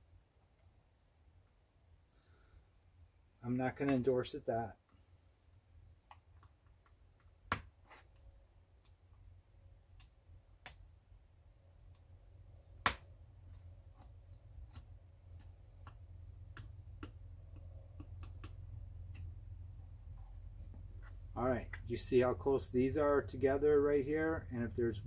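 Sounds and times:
low hum: 8.5s - 25.0s
plastic parts clicking and tapping: 12.8s - 19.4s.

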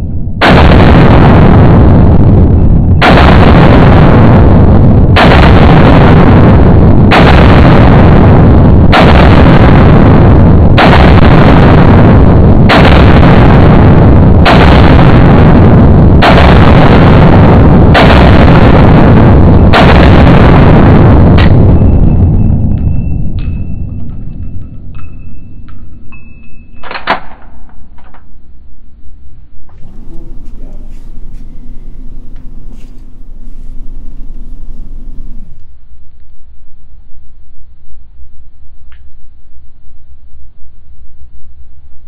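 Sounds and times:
slowed gunshots deep booms: 0.0s - 26.1s, 29.8s - 35.6s.

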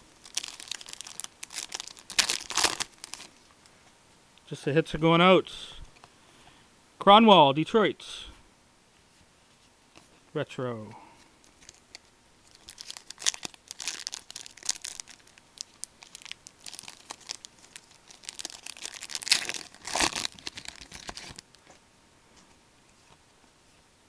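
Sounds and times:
card pack wrapper crinkling and tearing: 0.2s - 3.4s, 11.4s - 21.5s
cards rustling: 11.5s - 21.6s.

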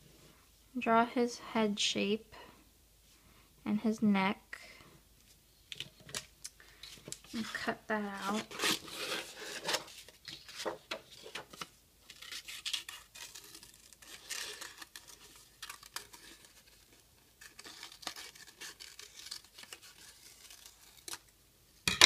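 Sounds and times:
paper rustling: 6.8s - 21.2s
scissors snipping paper: 12.1s - 21.2s.

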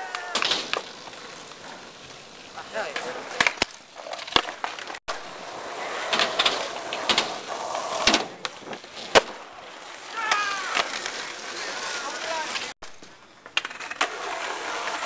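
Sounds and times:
skateboard wheels rolling on concrete: 0.0s - 15.0s
skateboard clacks: 2.6s - 9.4s, 10.1s - 15.0s.

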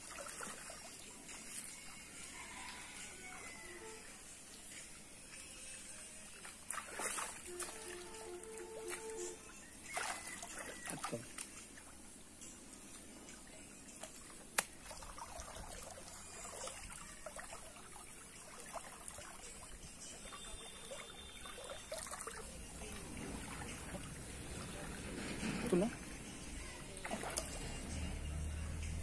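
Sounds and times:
water trickling: 6.2s - 26.2s
small splashes of hands in water: 6.3s - 11.9s, 27.0s - 27.8s.

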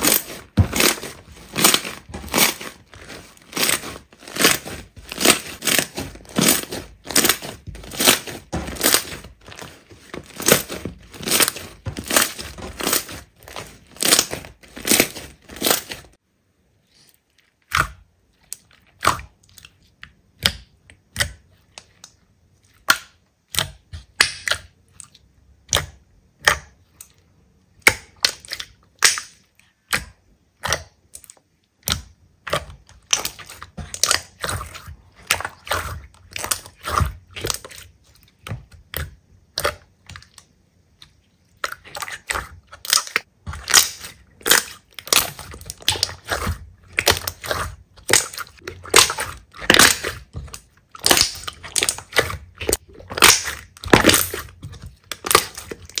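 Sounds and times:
slime popping and crackling: 0.0s - 16.2s, 41.6s - 56.0s.

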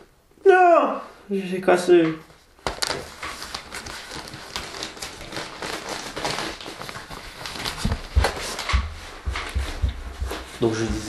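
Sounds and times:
plastic packaging crinkling: 2.3s - 8.7s
dull thumps: 7.7s - 11.0s.

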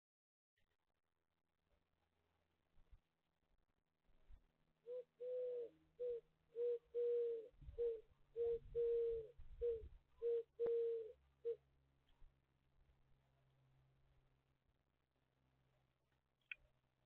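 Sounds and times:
dove cooing: 4.9s - 11.6s.

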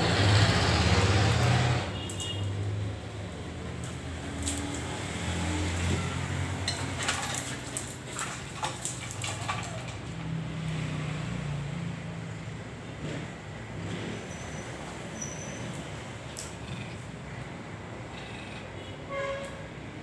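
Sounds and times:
dogs scuffling: 5.7s - 10.4s
dogs growling: 16.3s - 18.8s.

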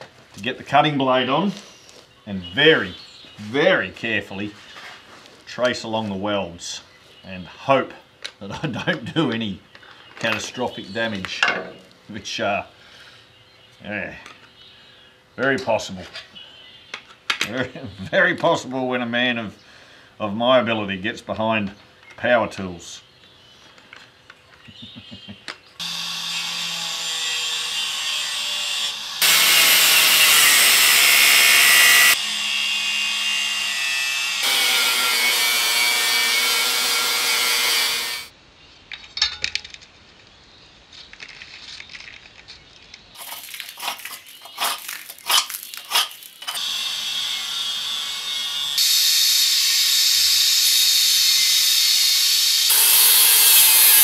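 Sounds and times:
angle grinder cutting steel: 25.8s - 38.3s, 43.2s - 54.0s.

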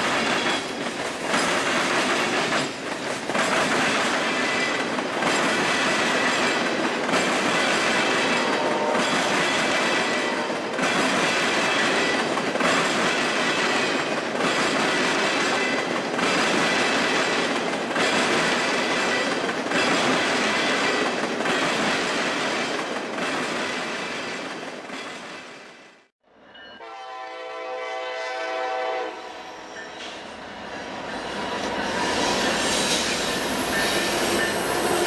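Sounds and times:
train wheels clattering over rail joints: 0.0s - 25.6s
locomotive air horn: 8.4s - 9.1s, 10.0s - 10.6s, 26.8s - 29.8s.

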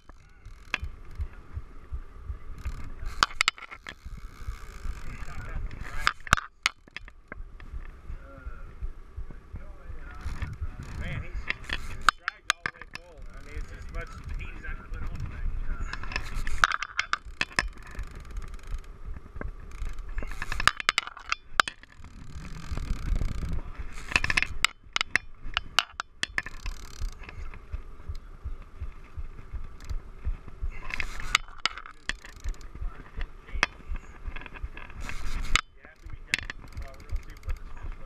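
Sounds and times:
fishing reel clicking: 0.0s - 1.2s, 2.6s - 7.2s, 10.1s - 15.1s, 15.9s - 18.9s, 19.7s - 27.6s, 29.8s - 30.0s, 30.7s - 38.0s
low rumble: 0.0s - 6.3s, 7.1s - 20.7s, 21.4s - 38.0s.

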